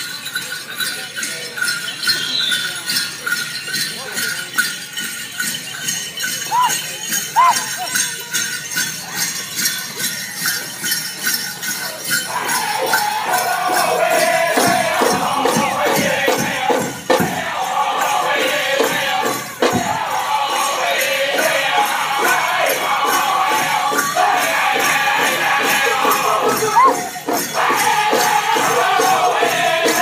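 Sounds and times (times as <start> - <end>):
bells jingling: 0.0 - 30.0
high singing: 12.2 - 30.0
steady drum beat: 12.3 - 30.0.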